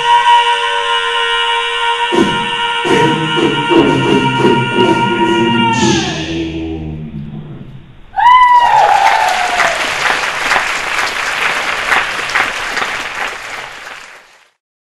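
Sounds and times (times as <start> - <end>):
audience cheering: 8.2 - 14.6
audience clapping: 8.7 - 14.6.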